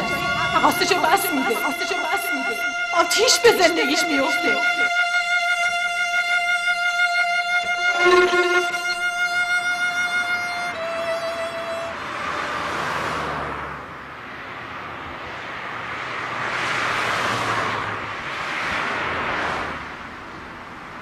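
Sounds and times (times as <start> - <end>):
violin holding long notes: 0.0 - 12.7
cars passing by: 0.0 - 21.0.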